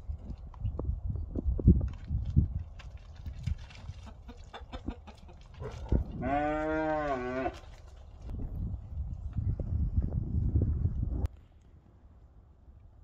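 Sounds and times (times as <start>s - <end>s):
hooves knocking in mud: 0.0s - 9.8s
cow mooing: 6.2s - 7.6s.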